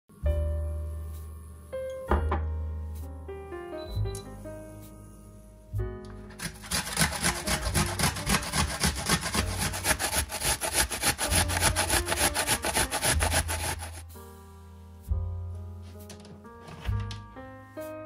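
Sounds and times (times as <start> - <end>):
onion grated on metal grater: 6.3 - 14.0.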